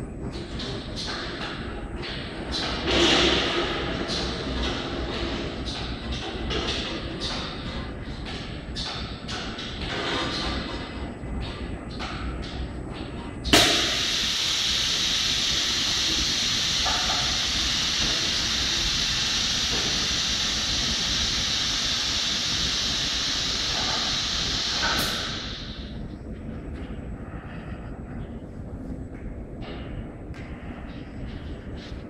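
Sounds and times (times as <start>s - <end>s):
loud hiss of rushing air: 13.6s - 26.0s.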